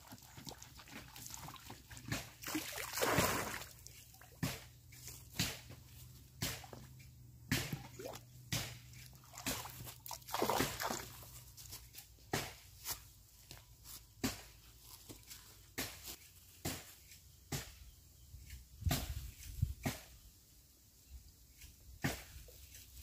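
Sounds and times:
splashy gurgles: 0.0 - 3.9, 9.1 - 11.3
water sloshing and dripping: 0.0 - 11.7.

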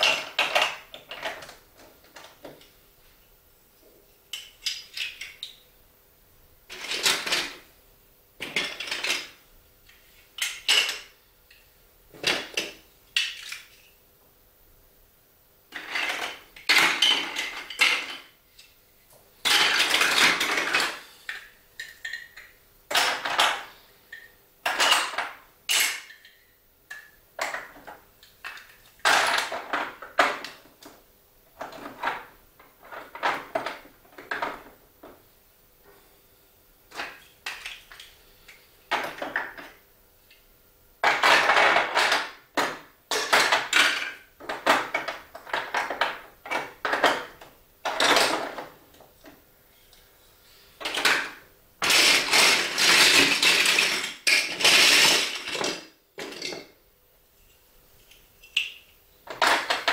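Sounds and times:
plastic blocks clattering and clicking: 0.0 - 2.6, 4.3 - 5.6, 6.7 - 7.6, 8.4 - 9.4, 10.4 - 11.1, 12.2 - 13.9, 15.7 - 18.3, 19.4 - 31.0, 31.6 - 35.2, 36.9 - 38.1, 38.9 - 39.8, 41.0 - 48.8, 50.8 - 56.7, 58.1 - 59.9.

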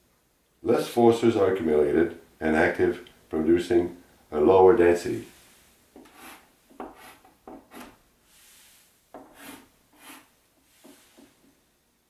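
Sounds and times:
chalk scratching on blackboard: 6.0 - 11.4.

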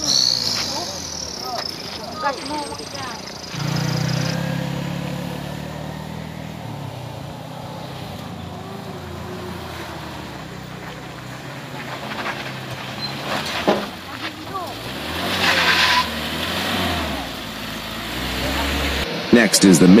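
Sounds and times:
pickup engine under load: 0.0 - 20.0.

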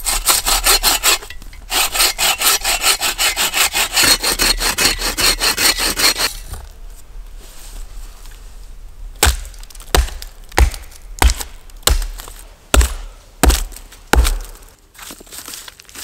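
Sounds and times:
hatchet chopping wood: 9.2 - 14.5.

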